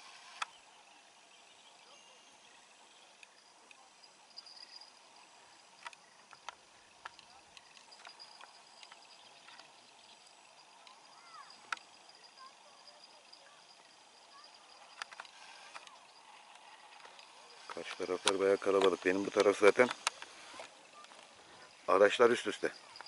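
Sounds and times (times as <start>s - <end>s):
high insect buzz: 0.0s - 23.0s.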